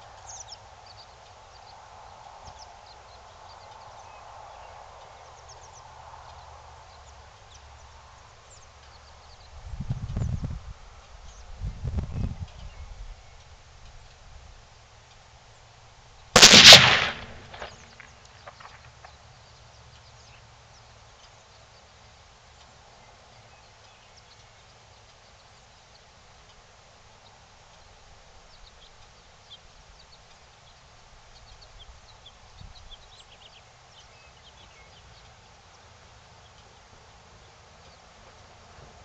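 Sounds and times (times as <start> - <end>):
rifle shot echo: 16.4 - 18.8.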